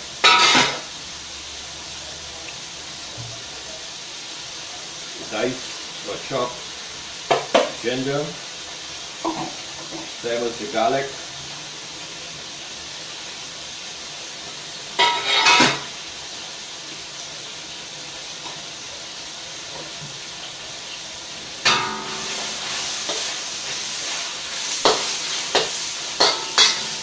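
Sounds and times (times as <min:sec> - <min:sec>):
food sizzling in a wok: 0:00.0 - 0:27.0
metal utensil clattering on wok: 0:00.2 - 0:00.8, 0:15.0 - 0:15.9, 0:24.8 - 0:27.0.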